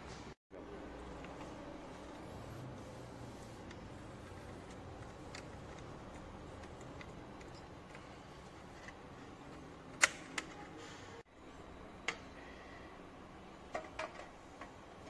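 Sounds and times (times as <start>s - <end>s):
connectors and metal cover clicking: 4.7s - 10.7s, 13.7s - 15.0s.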